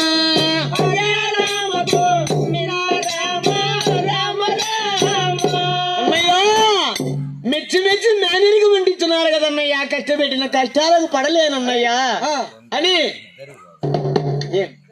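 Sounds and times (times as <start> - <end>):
jingling hand percussion: 0.0 - 11.8, 12.8 - 14.9
double-headed drum struck: 13.8 - 14.7.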